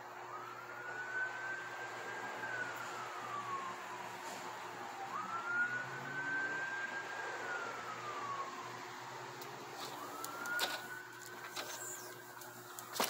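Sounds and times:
siren wailing: 0.0 - 13.0.

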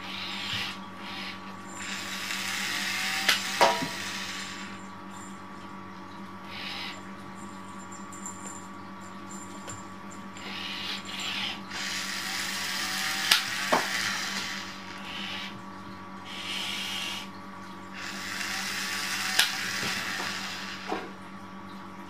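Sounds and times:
small electric motor whirring: 0.0 - 4.8, 10.4 - 15.5, 18.0 - 21.1.

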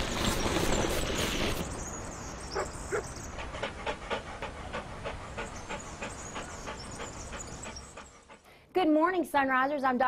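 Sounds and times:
cartoon dog panting: 3.0 - 8.5.

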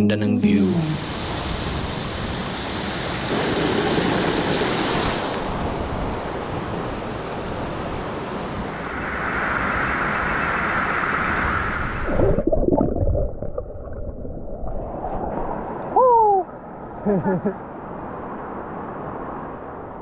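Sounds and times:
waterfall falling into pool: 2.4 - 5.4.

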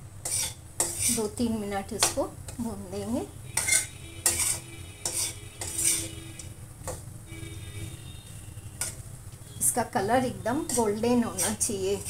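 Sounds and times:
low steady hum: 0.0 - 12.0
metal spatula scraping pan: 0.2 - 2.6, 3.5 - 7.0, 8.7 - 9.0, 10.4 - 12.0.

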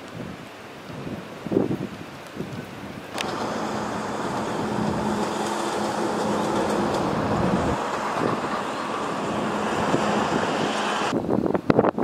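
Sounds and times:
wind on microphone: 0.0 - 12.0
vehicle hum on road: 3.1 - 11.2.

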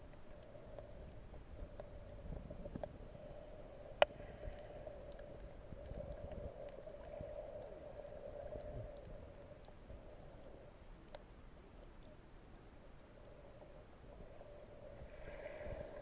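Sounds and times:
faint steady hum: 0.0 - 16.0
underwater water sloshing: 13.1 - 16.0.

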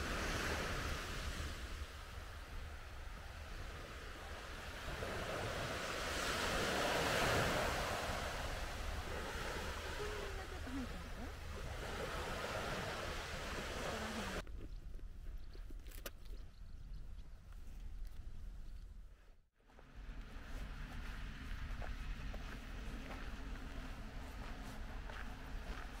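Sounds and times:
small waves washing onto beach: 0.0 - 14.4.

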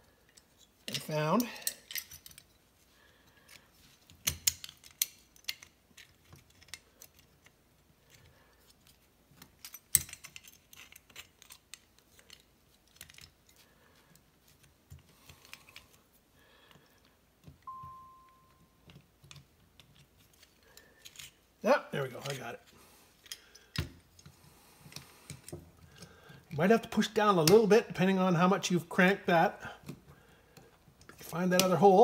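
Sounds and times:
small metal parts clicking: 0.2 - 2.6, 3.4 - 14.2, 18.8 - 21.4, 23.2 - 24.3.

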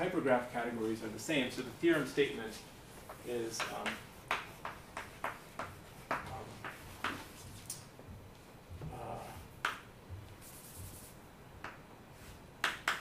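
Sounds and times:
hand wiping chalk: 0.7 - 7.8, 8.9 - 11.2
chalk tapping on a blackboard: 3.0 - 7.8, 9.6 - 11.8, 12.6 - 13.0.

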